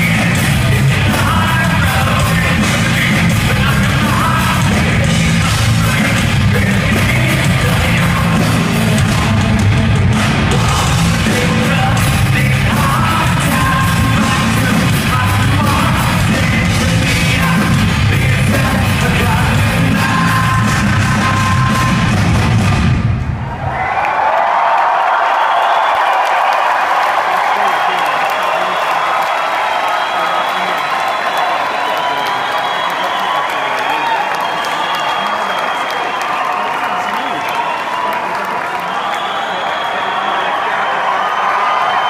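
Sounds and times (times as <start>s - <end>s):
person yelling and singing: 0.0s - 22.2s
metal band playing: 0.0s - 23.3s.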